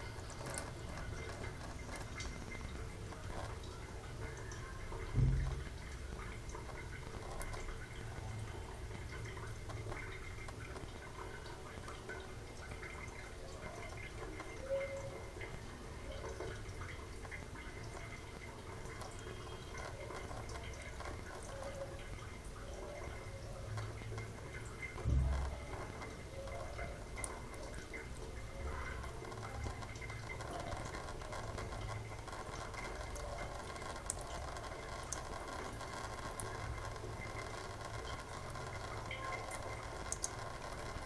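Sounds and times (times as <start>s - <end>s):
tap water trickling into steel sink: 0.0s - 41.0s
low thump: 5.2s - 5.7s.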